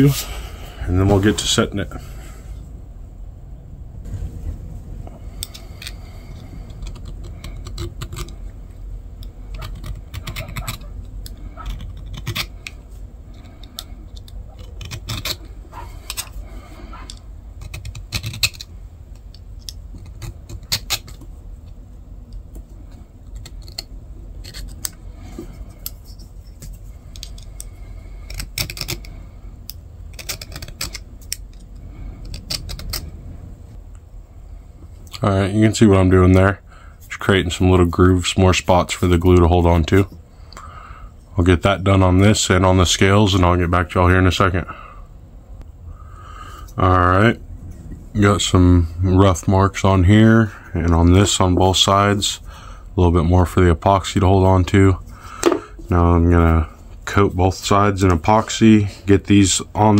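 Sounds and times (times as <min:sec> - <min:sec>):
steady low hum: 0:00.0 - 0:59.9
hand file scraping metal: 0:09.3 - 0:12.8.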